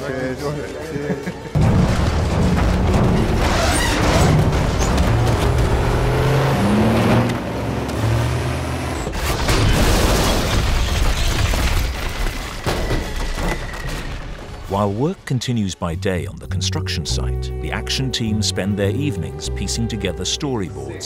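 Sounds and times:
booming crashes and breaking debris: 1.6 - 6.3, 9.1 - 14.7.

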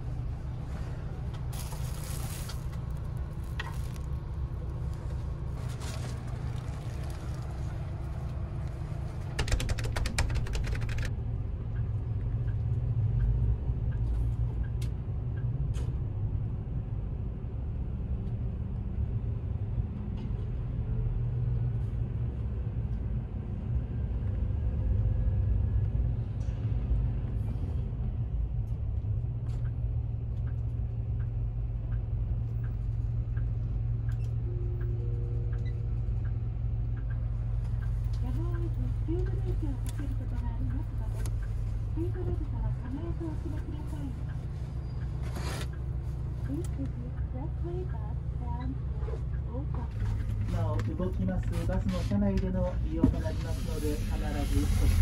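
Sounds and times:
coach engine rumble: 0.0 - 16.5, 21.8 - 55.0
rapid rattle of clicks: 9.4 - 11.1.

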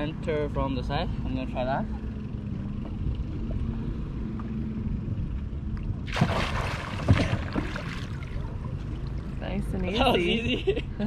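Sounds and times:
low steady rumble: 0.0 - 11.0
water splashing and sloshing: 2.8 - 10.1.

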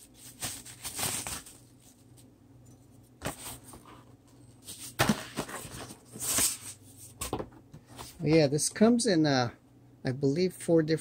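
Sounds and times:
bubble wrap rustling: 0.0 - 2.3.

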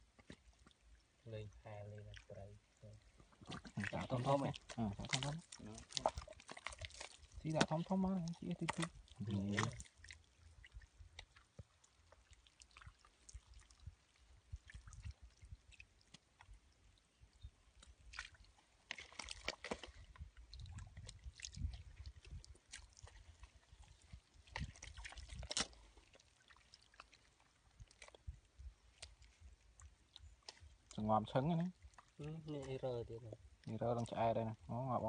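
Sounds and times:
hands squelching in wet mud: 3.2 - 16.7, 17.7 - 31.0
wet splats: 24.4 - 27.2.

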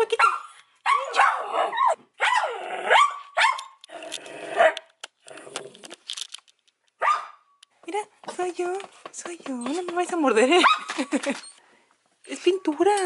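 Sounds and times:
small dog barking: 0.2 - 3.7, 7.0 - 7.4.

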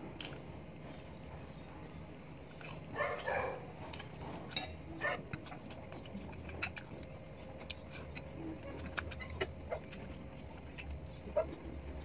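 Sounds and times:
chewing and mouth smacks: 2.5 - 12.0.

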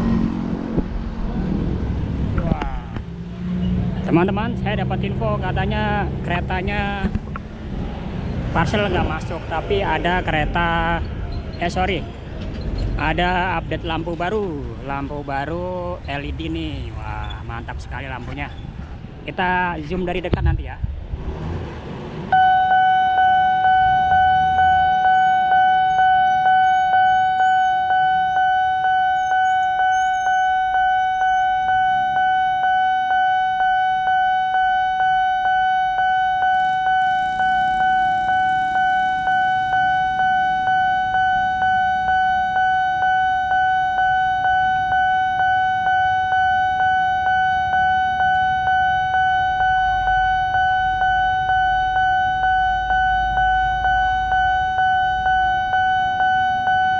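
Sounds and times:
level crossing alarm pulsing: 22.3 - 56.9.

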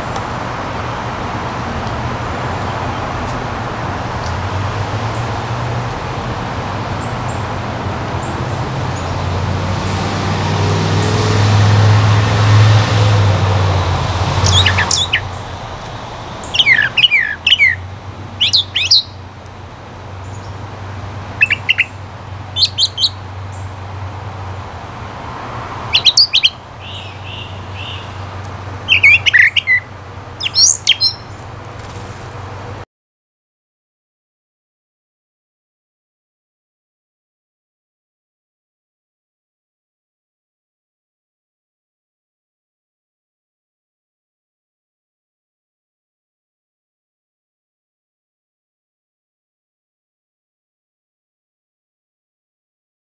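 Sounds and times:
passing traffic: 0.0 - 32.8
songbird singing: 5.0 - 10.4, 13.6 - 25.0, 25.8 - 32.8.

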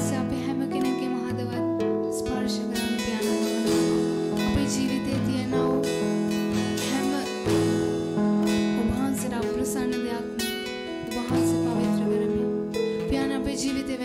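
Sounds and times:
acoustic guitar strumming: 0.0 - 14.0.

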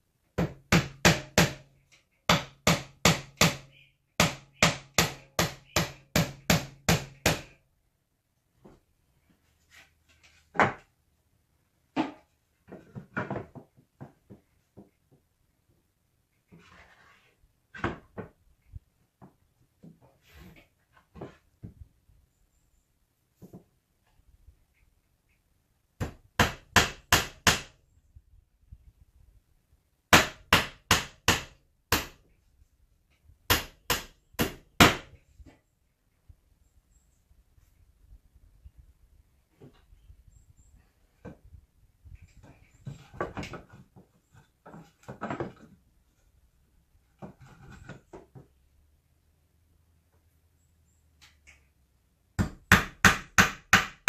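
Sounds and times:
hammer driving nails into wood: 0.4 - 7.6, 26.0 - 27.8, 30.1 - 32.2, 33.5 - 35.2, 52.4 - 54.0.

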